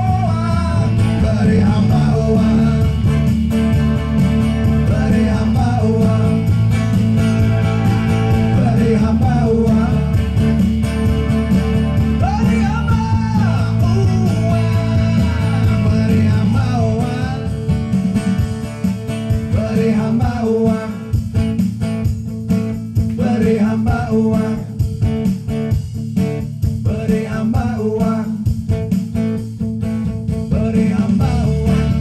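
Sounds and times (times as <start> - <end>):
person singing: 0.0 - 3.3, 4.7 - 10.4, 12.0 - 17.6, 19.5 - 21.1, 23.2 - 24.8, 26.9 - 28.4, 30.5 - 32.0
keyboard playing: 0.0 - 18.4
acoustic guitar: 0.0 - 32.0.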